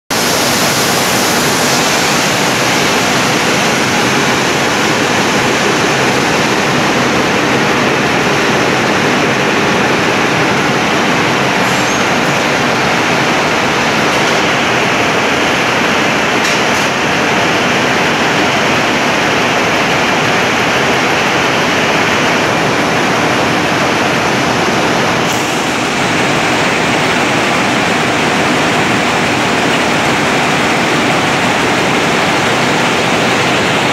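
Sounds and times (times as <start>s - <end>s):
spinning mill machinery rushing: 0.1s - 33.9s.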